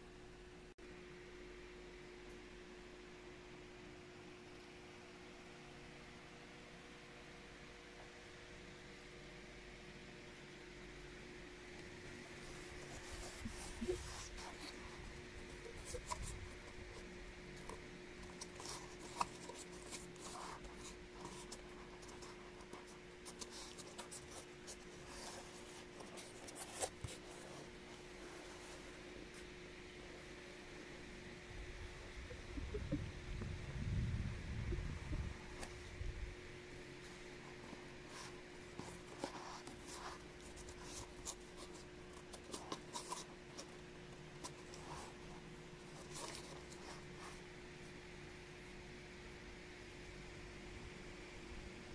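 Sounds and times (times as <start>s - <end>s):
faint steady hum: 0.0s - 51.9s
cardboard scratching and rubbing: 12.3s - 29.5s, 37.0s - 47.7s.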